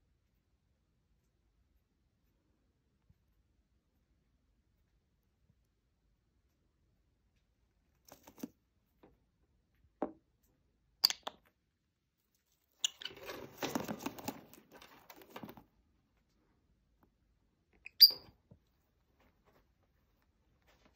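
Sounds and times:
bird rustling in paper: 0:08.0 - 0:08.6, 0:12.3 - 0:15.7, 0:19.0 - 0:20.9.

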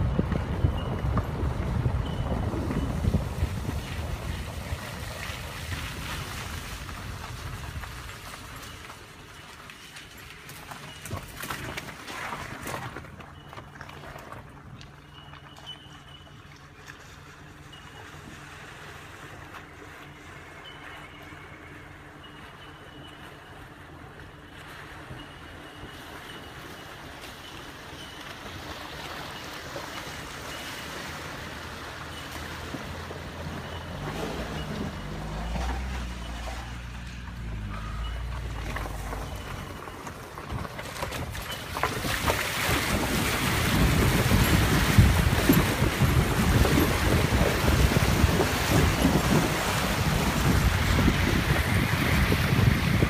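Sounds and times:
wind buffeting microphone: 0:00.0 - 0:08.8, 0:32.7 - 0:53.0
car engine running low: 0:00.0 - 0:11.8, 0:29.8 - 0:53.0
creek water rushing: 0:36.9 - 0:53.0.

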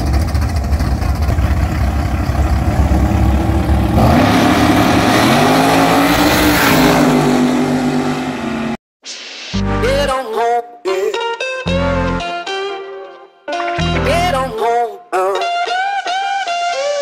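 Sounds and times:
car engine accelerating: 0:00.0 - 0:08.8
drag race car engines rumbling: 0:00.0 - 0:08.8.

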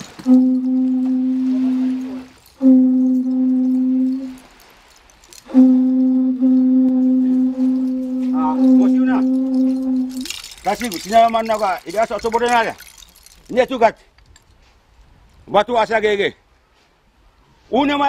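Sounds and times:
conch shell trumpet blasts: 0:00.1 - 0:04.7, 0:05.5 - 0:11.4.

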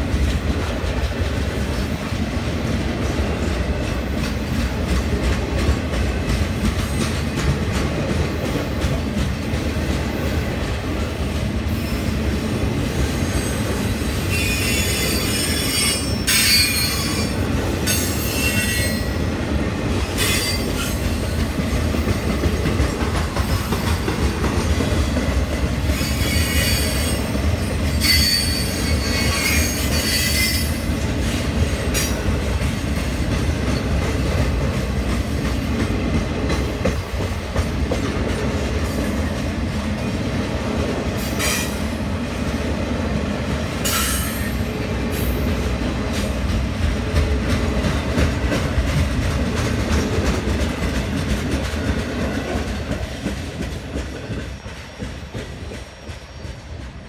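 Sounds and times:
train wheels rumbling on rail: 0:00.0 - 0:57.0
high-pitched wheel squeal: 0:14.3 - 0:17.3, 0:28.0 - 0:30.7.

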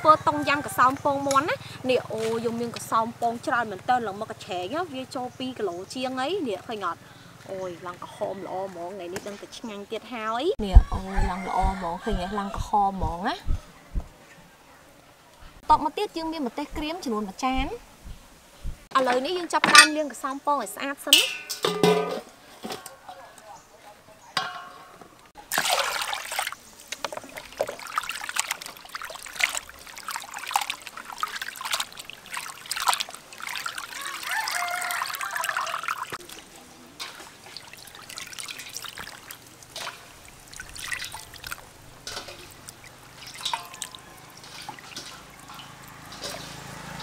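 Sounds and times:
water splashing in a steel bowl: 0:21.1 - 0:22.3, 0:25.4 - 0:47.0.

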